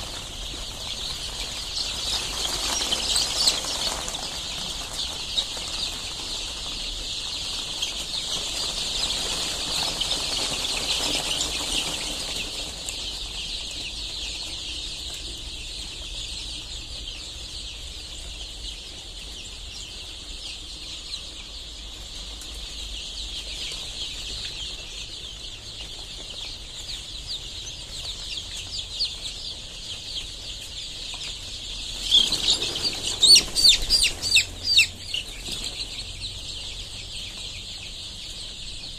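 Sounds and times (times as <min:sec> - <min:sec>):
chicks peeping: 0:00.0 - 0:38.9.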